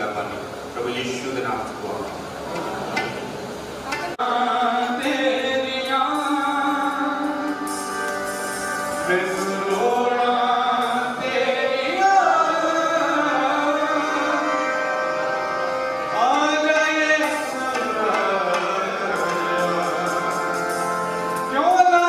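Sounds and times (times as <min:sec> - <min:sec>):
harmoniums playing sustained chords: 0:04.1 - 0:22.0
man singing: 0:04.2 - 0:08.0, 0:09.0 - 0:15.1, 0:16.0 - 0:22.0.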